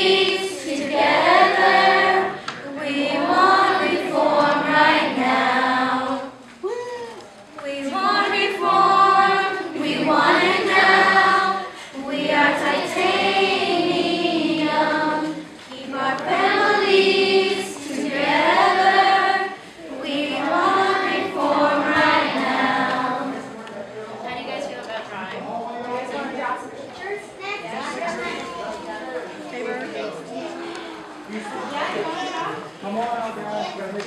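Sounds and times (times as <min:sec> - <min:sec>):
children and women singing: 0:00.0 - 0:06.6, 0:07.6 - 0:23.7.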